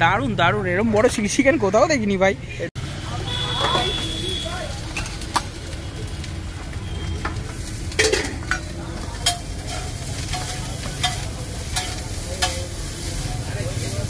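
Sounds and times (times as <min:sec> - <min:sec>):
food sizzling in a wok: 0:02.8 - 0:14.0
metal ladle clinking against pan: 0:07.2 - 0:12.7.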